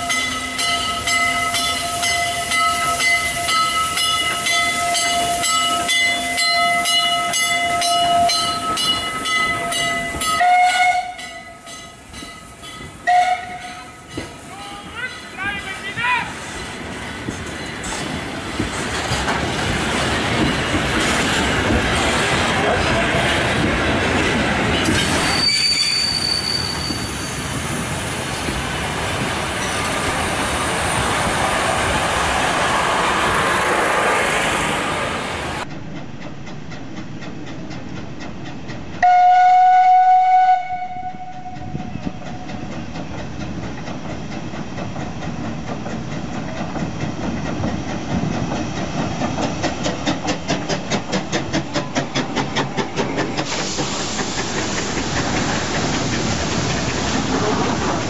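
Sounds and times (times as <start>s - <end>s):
steam locomotive chuffing: 0.0s - 58.0s
train rolling on rails: 0.0s - 58.0s
steam locomotive whistle: 9.5s - 11.7s, 13.0s - 14.0s, 25.2s - 27.2s, 39.0s - 41.8s.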